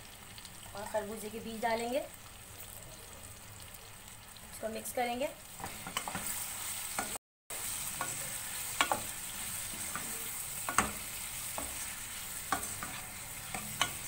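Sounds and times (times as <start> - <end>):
food sizzling in hot oil: 0.0 - 14.0
spatula scraping and knocking pan: 5.6 - 14.0.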